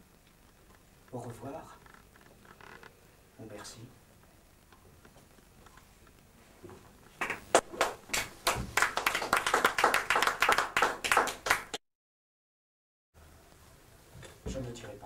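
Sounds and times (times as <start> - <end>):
small audience clapping: 7.2 - 11.8.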